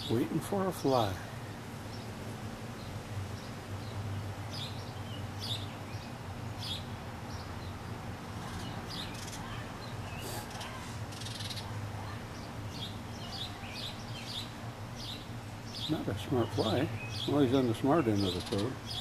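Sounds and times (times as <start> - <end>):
bird chirps: 8.5 - 19.0.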